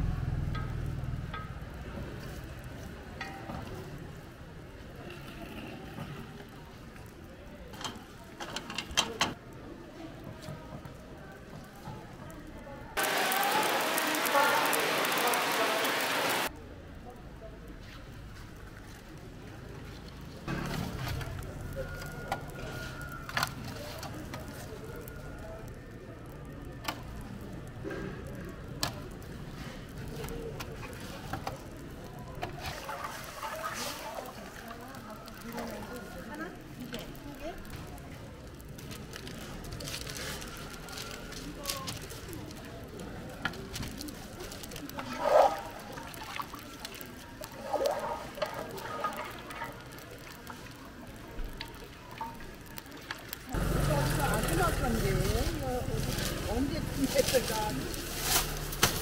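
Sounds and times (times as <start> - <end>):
rice crust cracking: 13.0 - 16.5, 18.0 - 59.0
liquid sloshing in a steel pot: 32.5 - 34.5.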